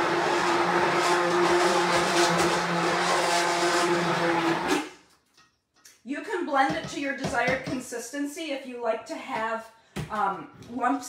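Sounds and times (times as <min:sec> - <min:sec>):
immersion blender motor whine: 0:00.0 - 0:05.0.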